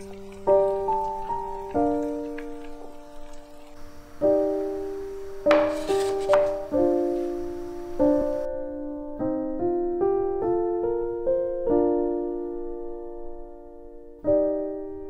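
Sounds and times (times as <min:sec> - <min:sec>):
faint hiss: 0:00.0 - 0:08.6
gentle piano music: 0:00.0 - 0:15.0.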